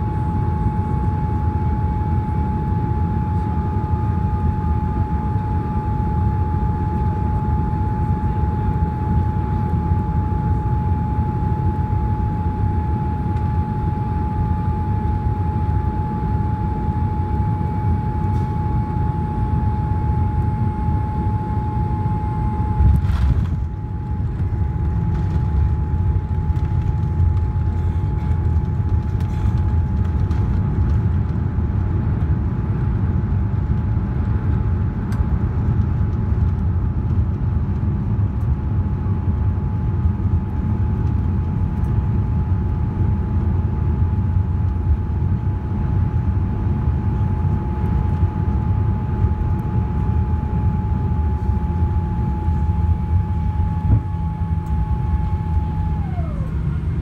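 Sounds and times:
steady high tone: 0:00.0 - 0:26.6, 0:50.9 - 0:57.0
low rumble of landing roll: 0:22.7 - 0:32.3.

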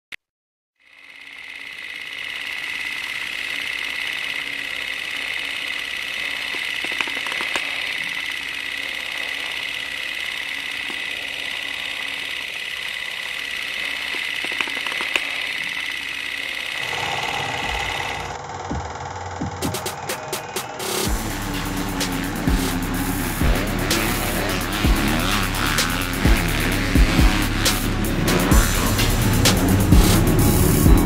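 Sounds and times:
film projector whirring clatter: 0:00.8 - 0:31.0
sharp clicks: 0:01.8 - 0:16.8
music: 0:18.5 - 0:31.0.

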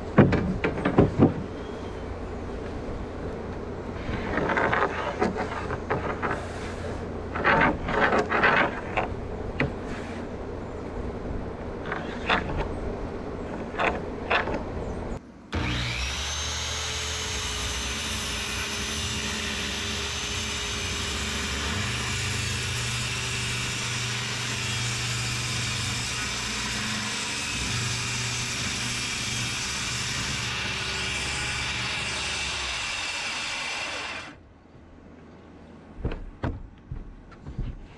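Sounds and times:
knocks and scrapes: 0:03.9 - 0:10.3, 0:11.6 - 0:12.8, 0:13.4 - 0:14.9, 0:36.0 - 0:37.9
power saw whining: 0:15.5 - 0:34.4.

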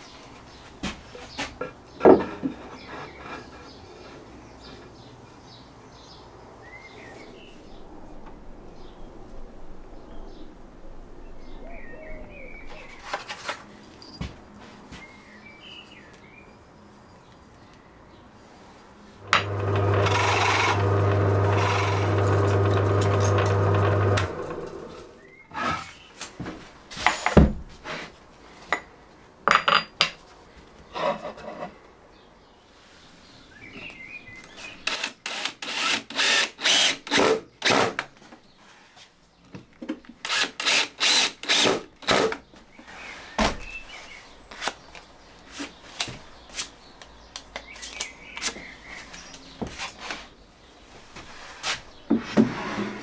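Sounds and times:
tools scraping wood: 0:02.0 - 0:04.9, 0:19.3 - 0:26.1, 0:30.9 - 0:31.8, 0:51.6 - 0:53.0
power tool running: 0:19.2 - 0:25.2, 0:34.9 - 0:37.8, 0:40.3 - 0:42.2.

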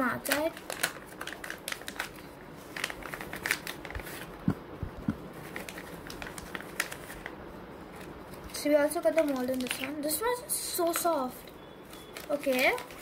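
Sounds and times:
plastic pouch crinkling: 0:00.2 - 0:04.4, 0:05.3 - 0:07.4, 0:08.0 - 0:10.2, 0:11.8 - 0:13.0.

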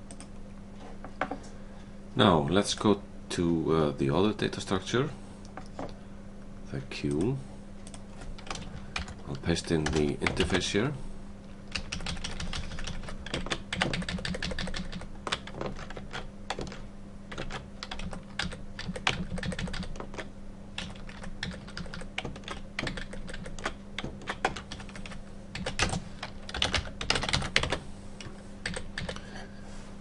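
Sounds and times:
steady low hum: 0:00.0 - 0:30.0
typing on a computer keyboard: 0:07.1 - 0:09.2, 0:11.7 - 0:27.8, 0:28.6 - 0:29.2.

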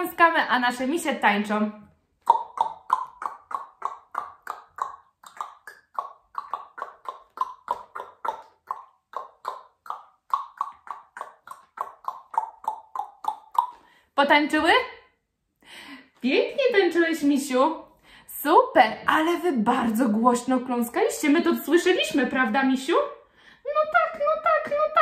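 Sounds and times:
tongue clicking: 0:02.2 - 0:14.0.

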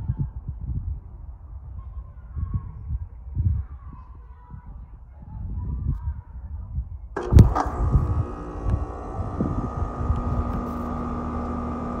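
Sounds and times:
high steady whine: 0:07.2 - 0:12.0
hvac unit hum: 0:07.2 - 0:12.0
low irregular rumbling: 0:07.2 - 0:12.0.

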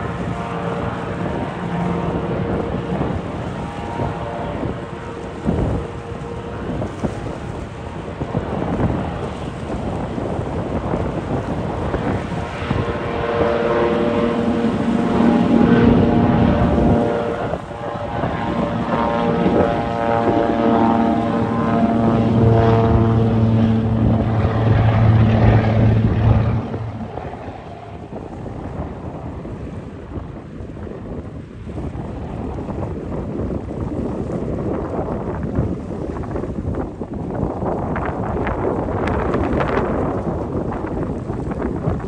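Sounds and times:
propeller plane engine roaring: 0:00.0 - 0:42.0.

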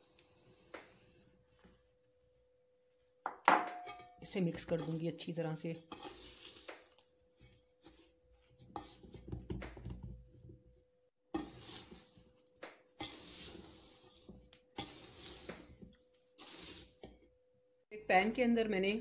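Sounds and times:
spatula scraping gritty mix in pot: 0:04.6 - 0:09.3, 0:11.3 - 0:17.2.

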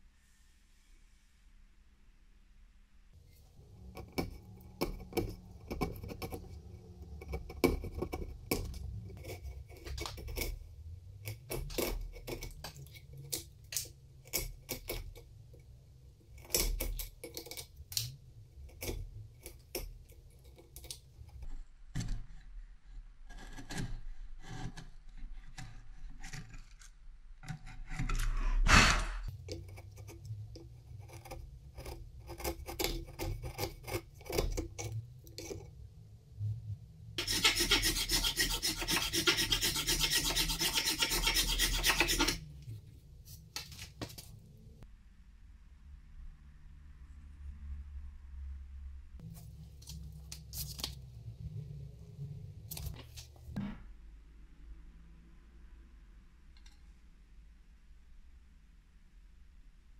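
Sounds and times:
chisel scraping wood: 0:03.9 - 0:10.6, 0:11.2 - 0:15.2, 0:18.7 - 0:28.7, 0:29.5 - 0:35.7, 0:37.2 - 0:42.5.

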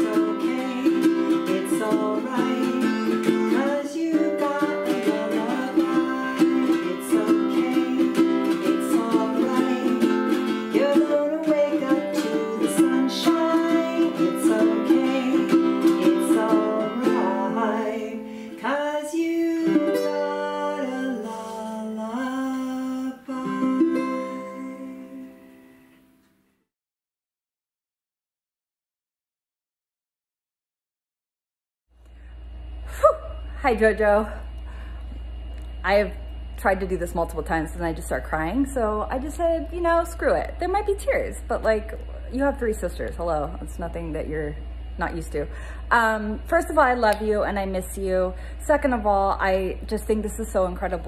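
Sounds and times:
woman singing: 0:00.0 - 0:25.4
ukulele strumming: 0:00.0 - 0:25.8.

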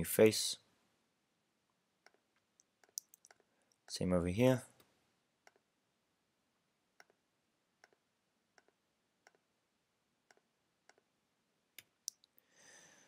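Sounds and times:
computer mouse clicks: 0:02.0 - 0:03.5.

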